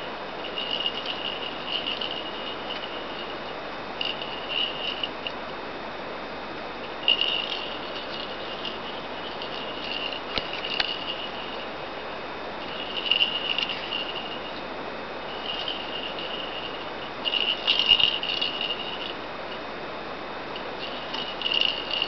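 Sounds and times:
steady hiss: 0.0 - 22.0
jingle bell in plastic ball: 0.4 - 5.3, 6.9 - 11.7, 12.6 - 14.6, 15.2 - 19.2, 20.7 - 22.0.

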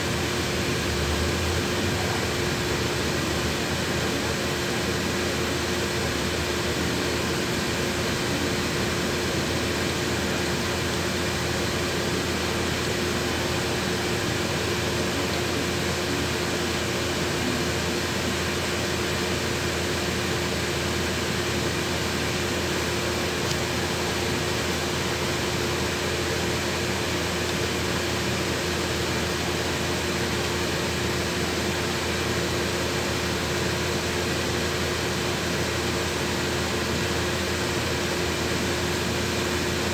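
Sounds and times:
bus engine running: 0.0 - 28.8
constant even whine: 0.0 - 39.9.

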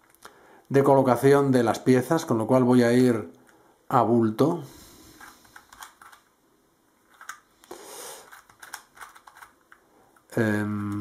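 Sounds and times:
puzzle plastic clicks: 8.2 - 11.0
man's voice: 10.4 - 11.0.

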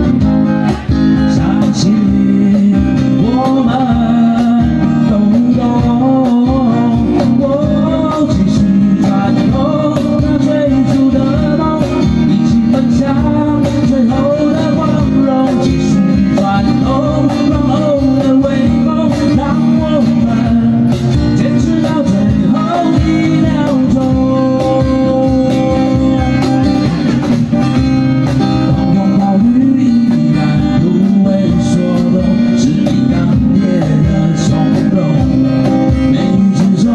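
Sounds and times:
acoustic guitars strummed: 0.0 - 36.9
cajon beat: 0.0 - 36.9
man singing: 0.0 - 36.9.

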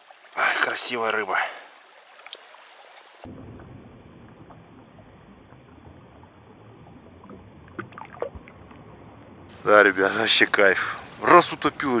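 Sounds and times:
stream water running: 0.0 - 12.0.

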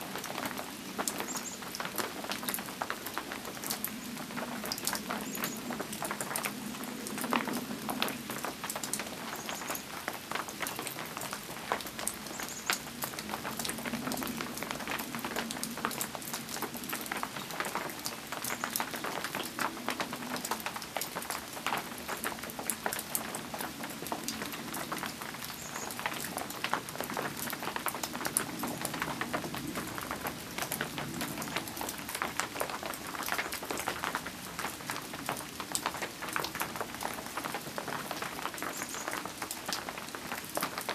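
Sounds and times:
rain pattering: 0.0 - 40.9.

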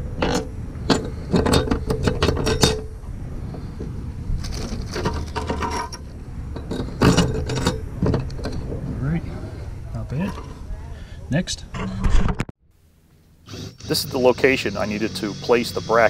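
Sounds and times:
steady low hum: 0.0 - 16.0
metal bolts clinking: 0.1 - 2.9, 4.6 - 8.8.

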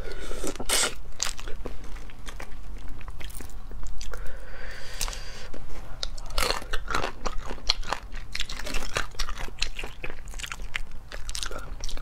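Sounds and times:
crayfish shells crunching: 6.0 - 12.0.

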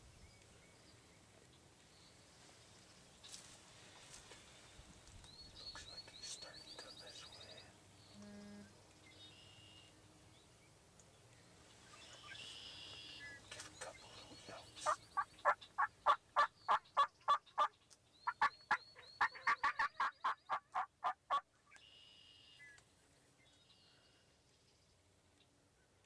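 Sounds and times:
faint songbird chirps: 0.0 - 20.9, 21.6 - 26.0
turkey yelps: 18.3 - 21.4.

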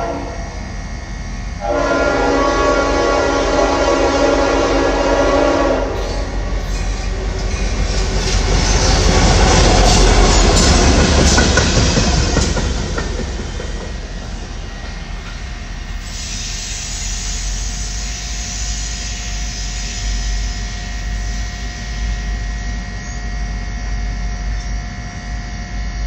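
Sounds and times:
diesel locomotives rumbling: 0.0 - 26.0.

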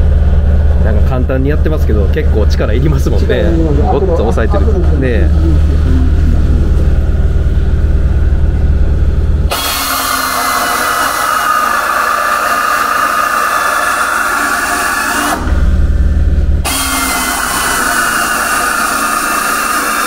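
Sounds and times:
low rumble: 0.0 - 9.6, 15.3 - 17.6
air drill hissing and whining: 9.5 - 16.0, 16.6 - 20.0.

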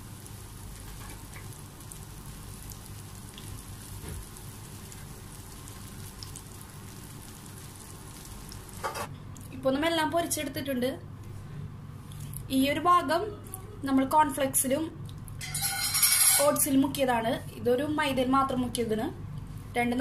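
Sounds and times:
food deep-frying in oil: 0.0 - 9.1, 15.4 - 16.7.

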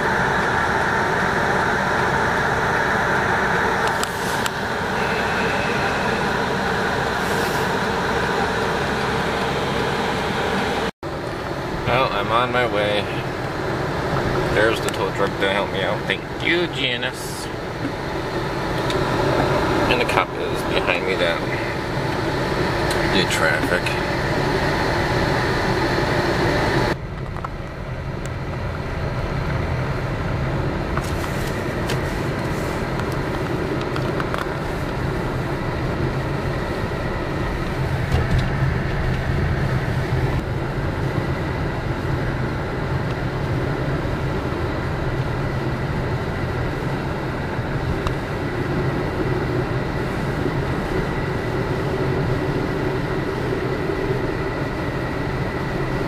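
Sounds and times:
loud rushing sound: 0.0 - 10.9
car engine and tyre noise: 0.0 - 56.0.

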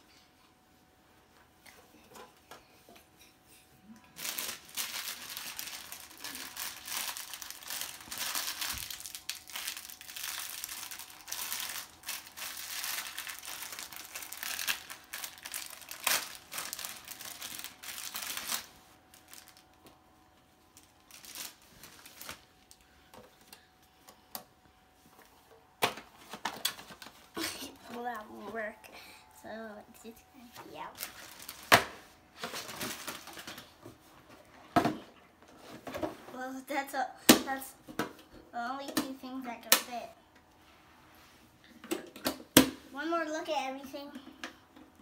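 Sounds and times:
packaging crinkling: 4.2 - 19.8, 20.8 - 22.8, 31.0 - 31.8, 32.4 - 33.6.

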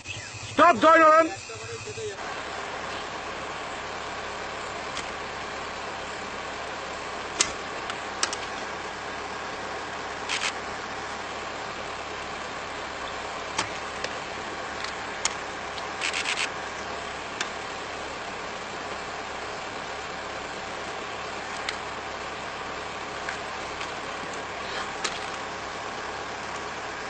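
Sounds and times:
vehicle engine idling: 0.0 - 27.0
quick clicks: 10.3 - 10.6, 14.8 - 16.5
car body knocking and cracking: 25.0 - 25.4.

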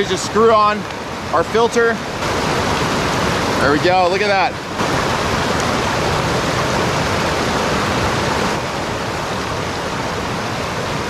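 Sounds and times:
creek rushing over rocks: 0.0 - 11.0.

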